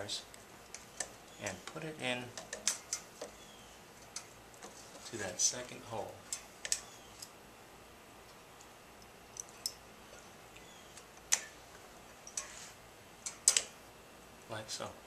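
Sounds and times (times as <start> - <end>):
pliers clicking on metal: 8.6 - 9.8, 13.2 - 13.7.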